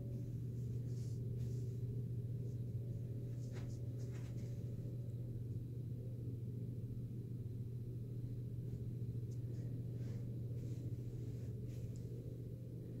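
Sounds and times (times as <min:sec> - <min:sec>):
low hum: 0:00.0 - 0:13.0
faint soft knocks or rustles: 0:03.3 - 0:04.7.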